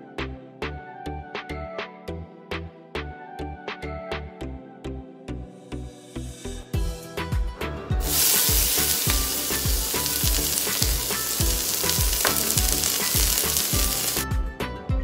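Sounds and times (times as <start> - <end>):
background music with steady beat: 0.0 - 15.0
onion sizzling in hot oil: 8.0 - 14.2.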